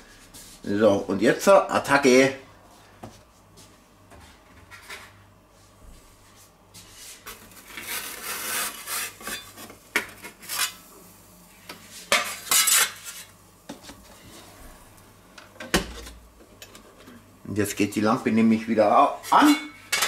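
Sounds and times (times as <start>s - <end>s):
pizza peel scraping on stone: 7.6s - 9.6s, 10.3s - 10.8s.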